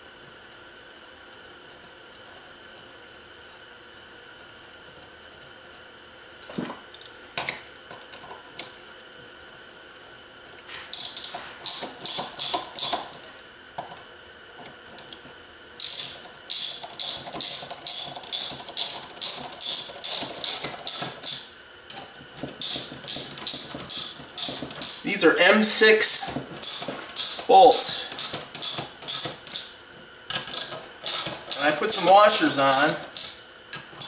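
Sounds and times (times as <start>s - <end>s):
hand ratchet clicking: 10.9s - 13.1s, 15.8s - 21.5s, 22.6s - 25.0s, 26.1s - 33.4s.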